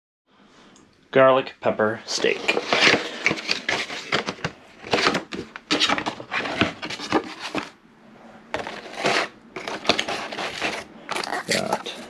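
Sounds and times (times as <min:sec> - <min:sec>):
packaging rustling and clicking: 0:02.2 - 0:07.8, 0:08.6 - 0:12.0.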